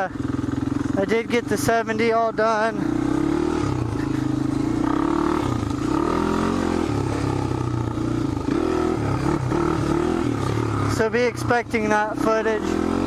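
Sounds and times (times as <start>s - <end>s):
four-stroke engine revving: 0.0s - 13.0s.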